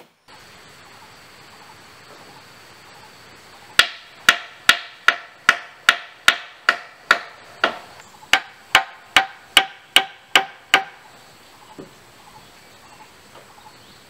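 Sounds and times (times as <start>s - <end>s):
hammer striking nails into wood: 3.8s - 11.0s.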